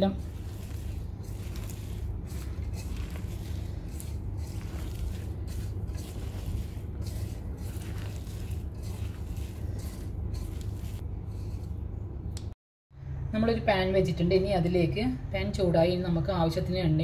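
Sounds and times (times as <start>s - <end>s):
hand mixing food rustling: 0.0s - 12.2s
steady low hum: 0.0s - 16.7s.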